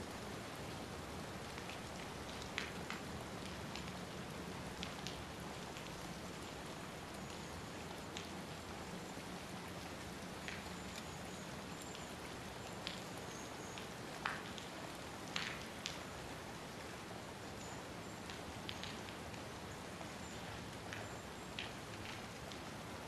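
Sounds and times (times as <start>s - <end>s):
steady rain falling: 0.0s - 23.0s.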